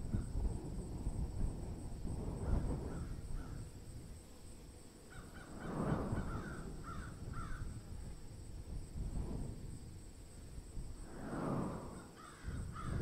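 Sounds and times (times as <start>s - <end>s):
low rushing noise: 5.5s - 6.9s, 9.0s - 12.2s.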